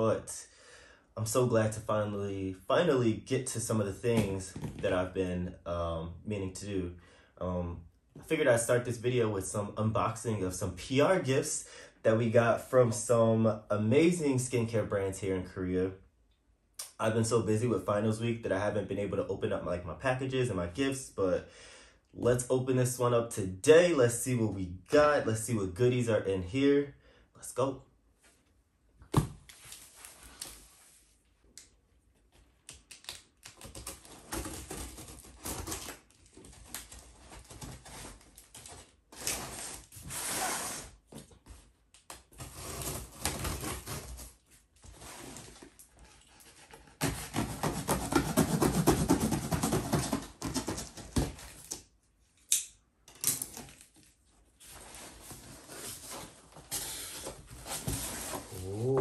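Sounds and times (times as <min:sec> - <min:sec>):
cardboard box rustling and scraping: 0:42.4 - 0:51.6, 0:54.6 - 0:58.7.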